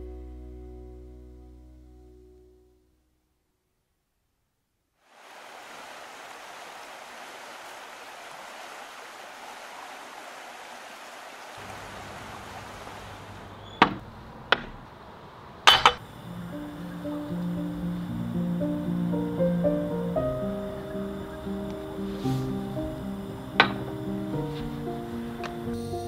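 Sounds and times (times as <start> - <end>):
faint low hum: 11.6 - 26.0.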